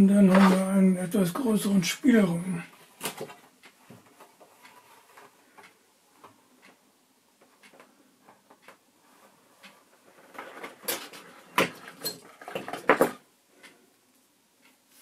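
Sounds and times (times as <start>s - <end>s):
clicks and knocks of parts: 10.2s - 13.2s.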